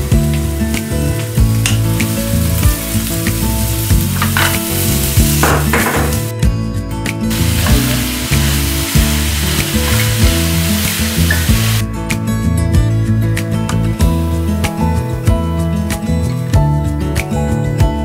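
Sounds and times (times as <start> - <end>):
onions sizzling in a frying pan: 0.2 - 6.3, 7.3 - 11.8.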